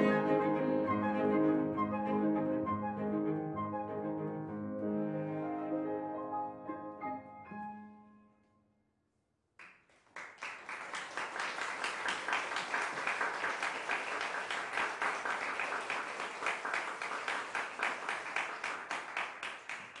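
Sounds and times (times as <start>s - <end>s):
audience applauding: 9.6s - 20.0s.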